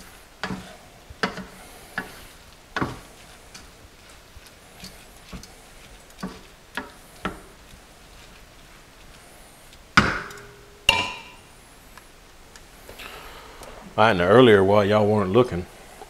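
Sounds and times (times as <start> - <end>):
spoon scraping a skillet: 0.0 - 11.7
spoon knocking on a pan: 0.4 - 2.2, 2.8 - 3.0, 6.2 - 7.5, 10.0 - 11.4.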